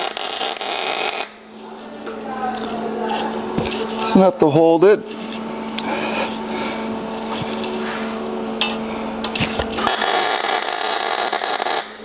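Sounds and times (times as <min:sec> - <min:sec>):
welding arc crackling: 0:00.0 - 0:01.5, 0:09.4 - 0:12.0
welder humming: 0:00.0 - 0:12.0.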